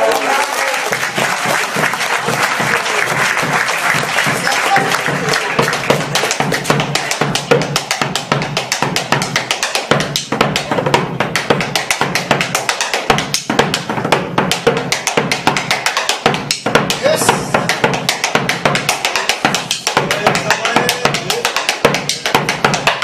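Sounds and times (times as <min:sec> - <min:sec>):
frame drum played with sticks: 0:03.4 - 0:23.0.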